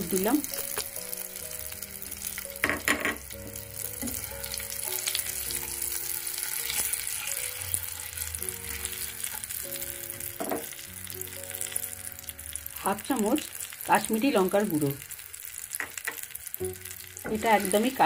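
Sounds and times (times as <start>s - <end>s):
hot oil sizzling and crackling: 0.0s - 18.0s
spatula stirring in wok: 4.0s - 10.8s.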